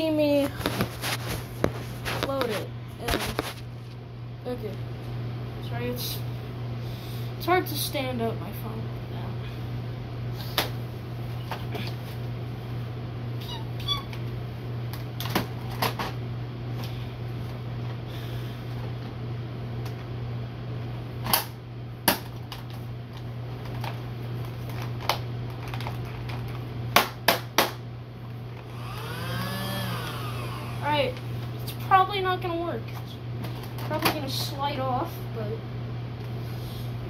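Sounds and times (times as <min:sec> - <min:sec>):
ceiling fan hum: 0:00.0 - 0:37.0.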